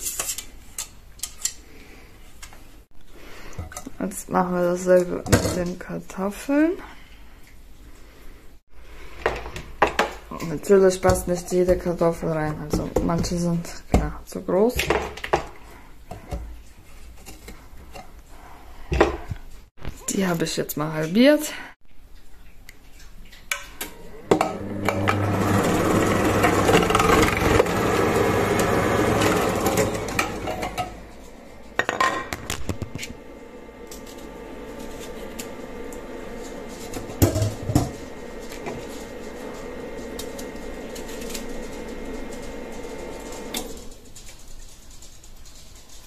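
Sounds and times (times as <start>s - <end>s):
food processor shredding potatoes: 23.9s - 44.2s.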